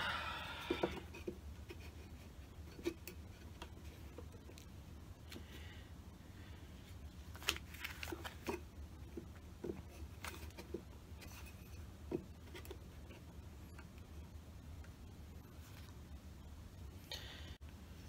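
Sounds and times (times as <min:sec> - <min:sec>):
low steady hum: 0:00.0 - 0:18.0
wooden strip tapping and scraping: 0:00.6 - 0:04.7, 0:07.4 - 0:14.1.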